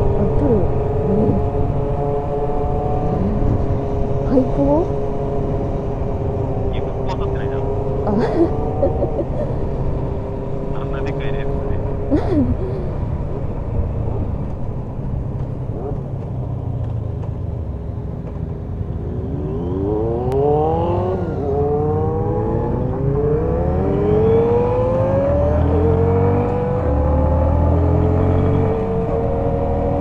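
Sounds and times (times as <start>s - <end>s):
motorcycle engine accelerating: 0.0s - 30.0s.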